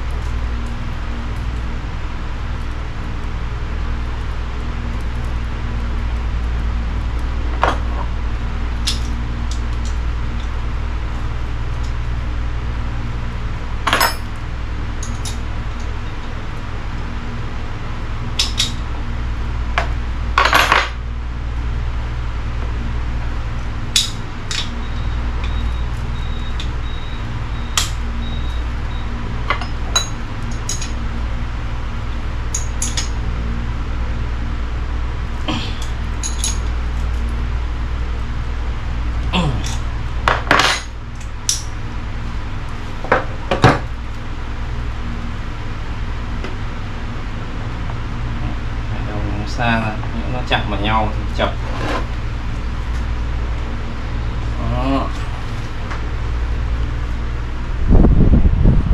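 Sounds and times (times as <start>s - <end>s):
steady low hum: 0.0s - 58.9s
metallic clinks of tools: 36.2s - 36.7s.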